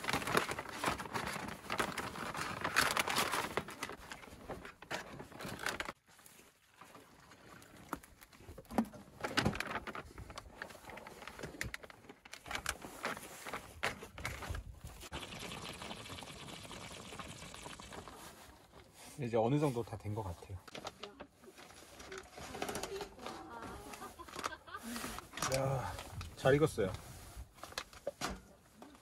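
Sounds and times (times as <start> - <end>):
plastic pouches crinkling: 0.0 - 6.0.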